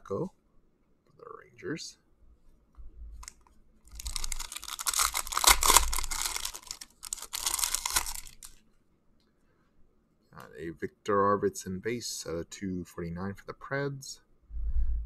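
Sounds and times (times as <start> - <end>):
foil wrapper crinkling: 3.2 - 8.6.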